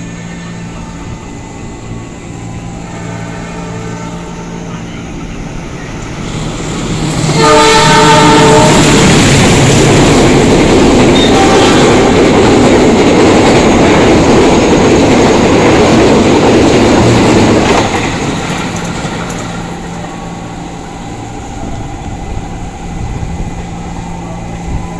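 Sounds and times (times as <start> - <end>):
train horn chord: 2.2 - 4.9, 7.3 - 9.2, 11.2 - 12.2
train wheels rushing past: 5.3 - 24.9.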